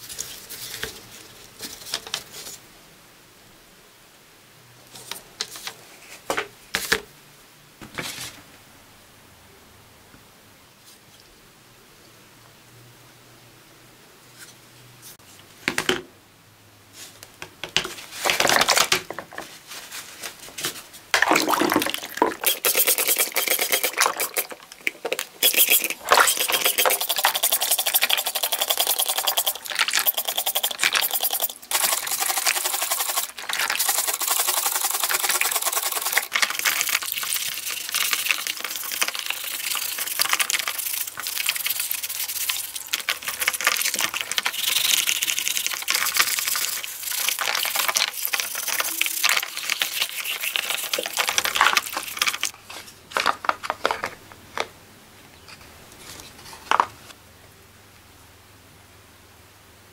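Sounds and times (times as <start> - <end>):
scratchy scrubbing of plastic: 22.2 - 53.8.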